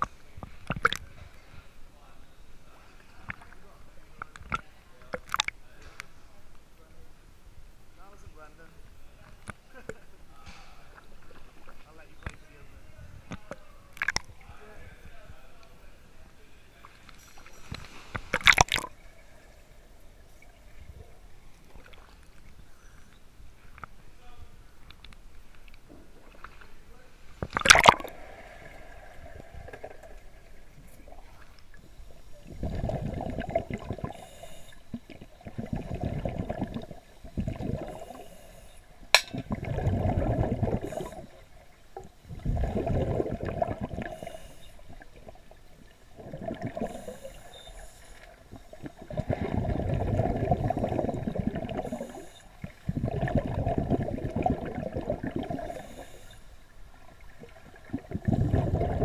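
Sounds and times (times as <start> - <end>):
underwater breathing bubbles: 17.7 - 19.0, 27.4 - 59.0
splash: 27.5 - 28.9.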